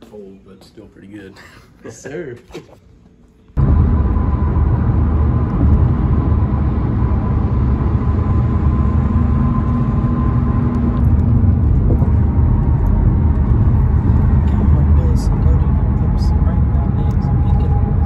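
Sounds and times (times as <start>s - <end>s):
car road and engine rumble: 3.6s - 18.0s.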